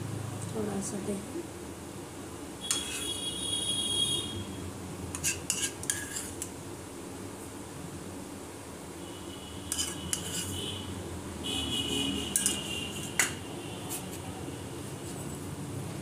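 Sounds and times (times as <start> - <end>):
metal spoon clinking on dish: 2.6 - 3.0, 12.3 - 13.4.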